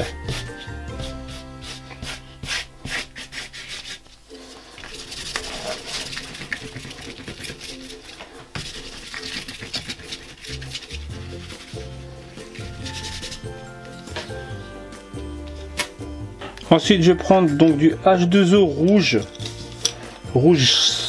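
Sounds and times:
paintbrush scrubbing on paper: 0:00.0 - 0:13.7
hand rubbing paper: 0:00.0 - 0:14.0.

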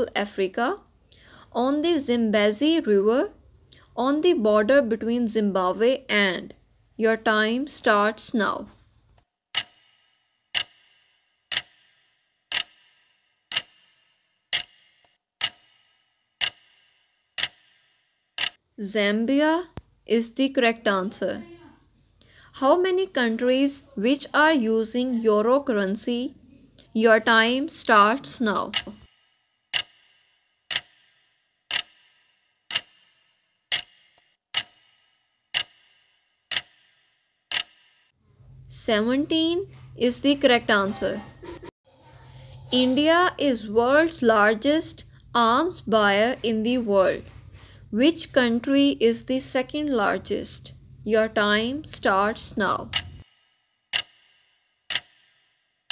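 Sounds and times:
clock ticking: 0:09.5 - 0:18.6, 0:26.8 - 0:41.7, 0:42.7 - 0:55.9.

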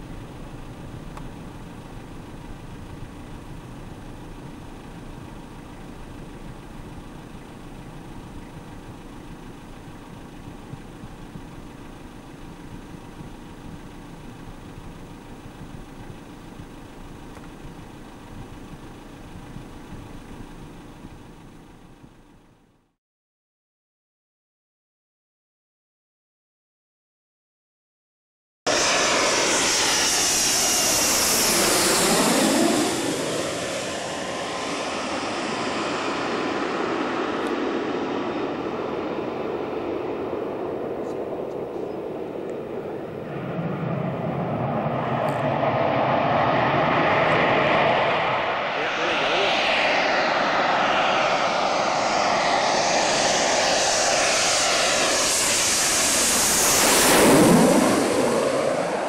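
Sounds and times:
jet passing low overhead: 0:28.7 - 0:59.0.

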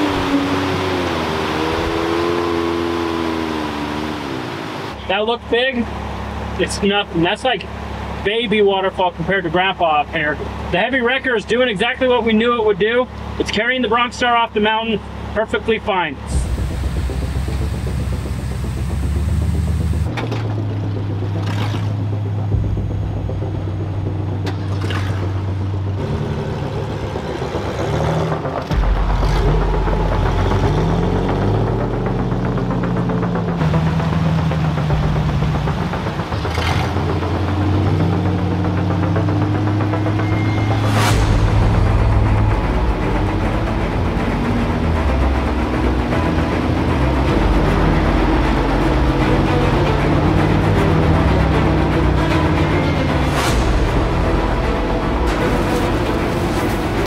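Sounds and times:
vehicle engine humming: 0:00.0 - 0:57.0
scraping noises: 0:53.2 - 0:57.0.

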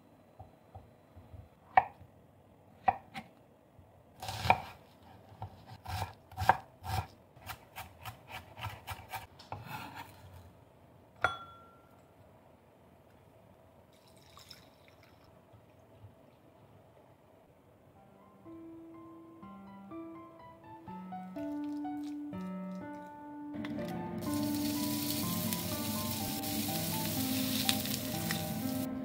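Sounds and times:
knife chopping on wooden board: 0:05.4 - 0:10.0.

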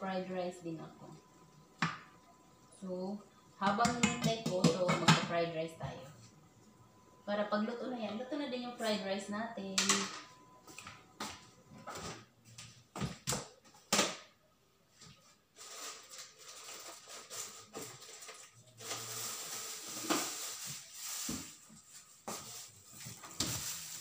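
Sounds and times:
kitchen items knocking and clicking: 0:03.6 - 0:05.4.

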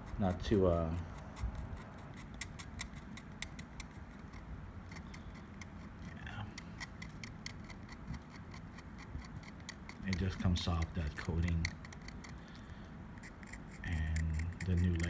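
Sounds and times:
knife blade scraping metal: 0:13.2 - 0:15.0.

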